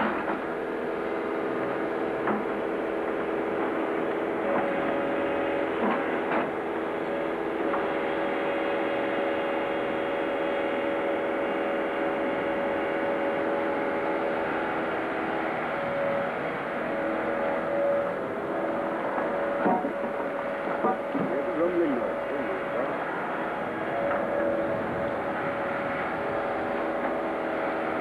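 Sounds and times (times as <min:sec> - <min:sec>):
excavator diesel engine running: 0:00.0 - 0:28.0.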